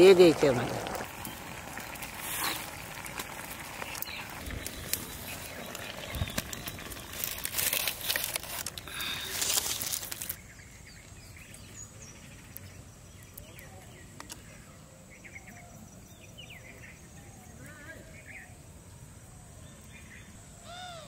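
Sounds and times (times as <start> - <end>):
outdoor ambience: 0.0 - 21.0
dry leaves crinkling: 1.5 - 10.4.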